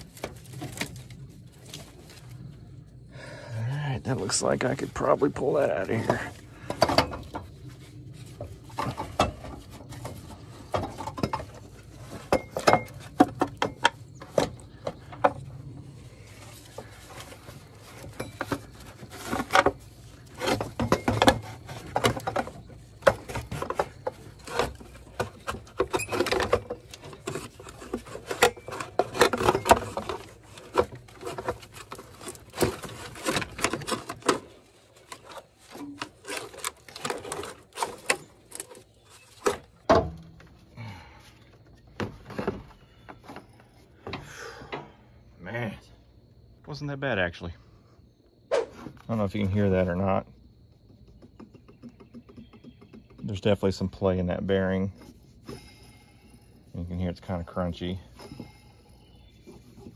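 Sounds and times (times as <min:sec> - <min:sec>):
metal clanks and scrapes: 0:04.1 - 0:40.5.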